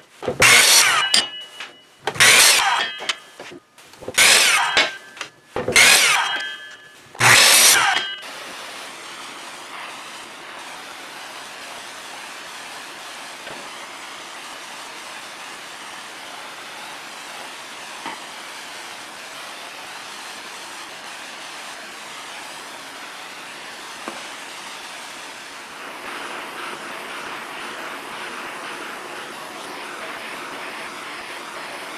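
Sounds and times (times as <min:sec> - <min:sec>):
miter saw cutting: 0:00.0 - 0:03.4, 0:04.0 - 0:09.4
propane torch hissing: 0:00.0 - 0:31.9.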